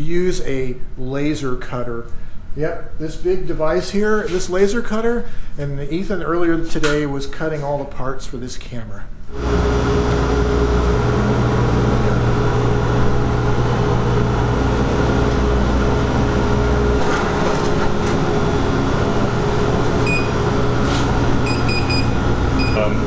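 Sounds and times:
machine hum and whir: 9.2 - 23.0
short electronic beeps: 20.0 - 20.4, 21.4 - 23.0.

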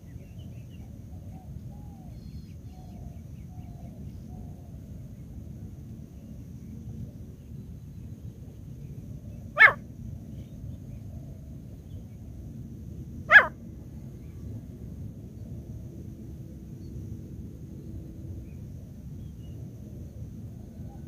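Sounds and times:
loud animal calls: 9.6 - 9.8, 13.3 - 13.6.

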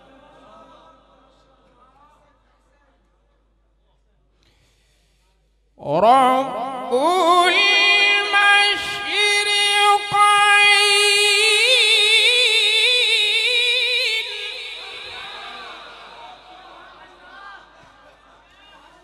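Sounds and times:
man reciting melodically: 5.8 - 16.9.

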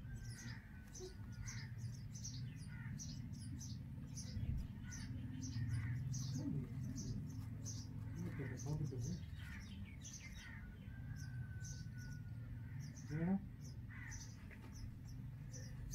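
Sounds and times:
steady low hum: 0.0 - 10.7
nestlings begging calls: 0.0 - 15.9.

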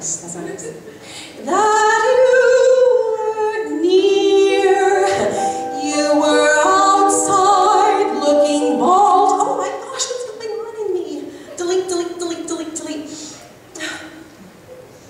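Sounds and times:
woman singing: 1.4 - 13.0.

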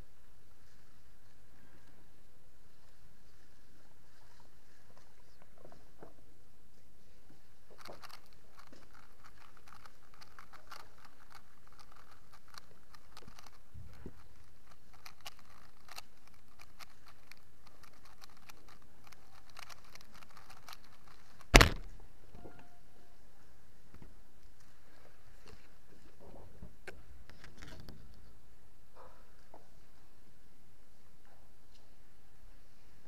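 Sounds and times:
plastic cube clicking: 14.7 - 21.9.

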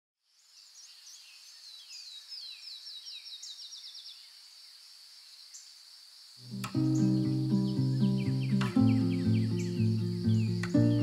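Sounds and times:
bird chirps: 0.4 - 4.4, 6.4 - 11.0
high insect drone: 3.2 - 11.0.

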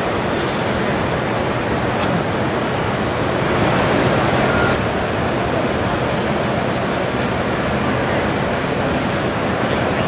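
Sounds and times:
crowd chatter: 0.0 - 10.0.

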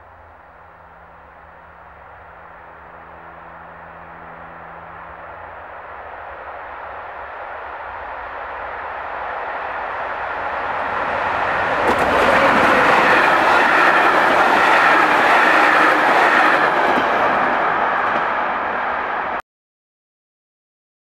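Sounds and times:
train wheels rumbling on rails: 0.0 - 19.4
clacks over rail joints: 11.4 - 18.4.

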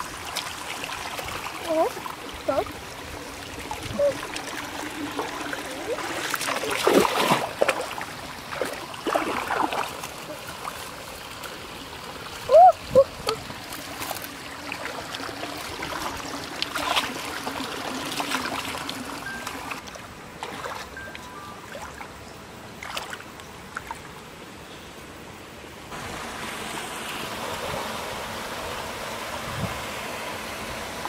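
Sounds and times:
feet wading through water: 0.0 - 22.1, 22.8 - 24.1
stream trickling: 0.0 - 31.0
watery plops: 3.8 - 10.3.

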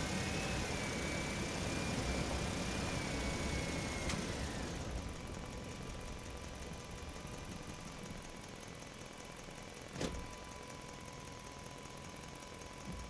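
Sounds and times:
truck engine rumbling: 0.0 - 8.6.

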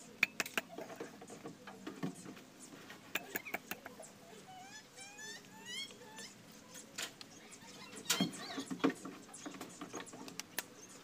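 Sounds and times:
animal chirps: 3.1 - 8.9.

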